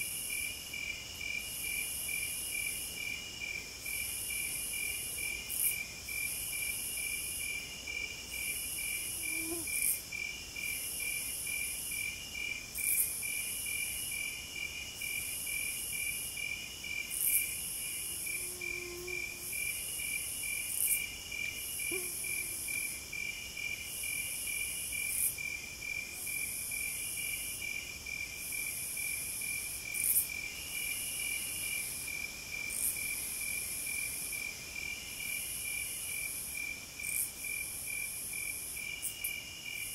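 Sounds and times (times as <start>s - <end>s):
insects chirping: 0.0s - 39.9s
high insect buzz: 8.3s - 12.2s, 15.1s - 25.5s.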